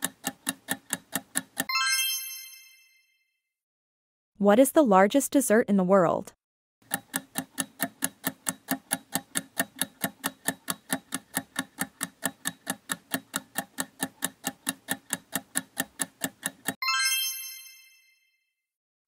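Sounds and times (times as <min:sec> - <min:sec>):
clock-like ticking: 0:00.0 - 0:01.7, 0:06.8 - 0:16.8.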